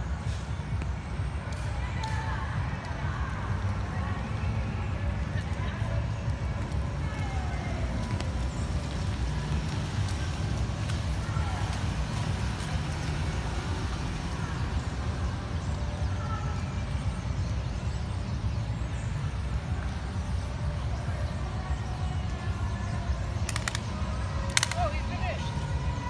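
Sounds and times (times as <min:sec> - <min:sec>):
faint voices of passers-by: 0:00.0 - 0:26.0
sharp clicks: 0:23.4 - 0:25.1.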